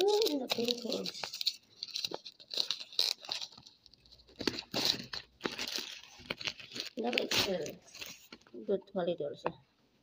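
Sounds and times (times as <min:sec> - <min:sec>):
plastic wrap crinkling: 0:00.0 - 0:08.7.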